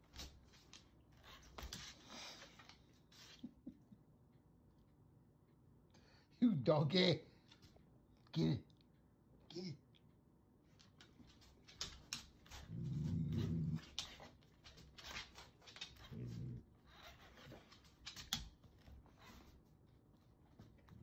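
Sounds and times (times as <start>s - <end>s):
large dog growling: 12.6s - 14.0s, 16.0s - 16.7s.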